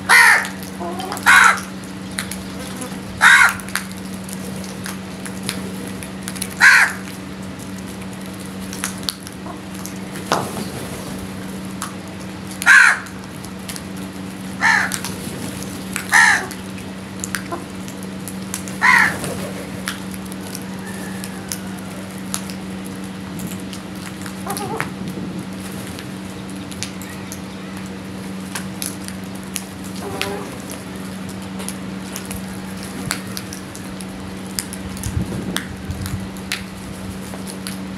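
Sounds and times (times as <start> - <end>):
crows cawing: 0.0 - 1.8, 3.2 - 3.8, 6.6 - 7.1, 12.6 - 13.2, 14.6 - 15.1, 16.0 - 16.7, 18.8 - 19.3
steady low hum: 0.0 - 37.9
small ticks: 0.4 - 10.0.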